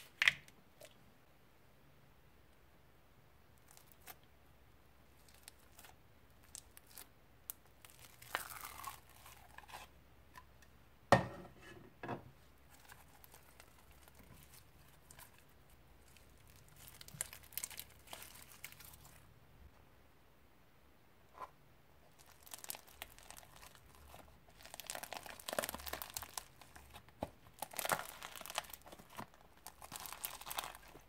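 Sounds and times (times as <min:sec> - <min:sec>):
slime clicking and crackling: 0:05.2 - 0:09.6, 0:12.7 - 0:19.2, 0:22.1 - 0:31.0.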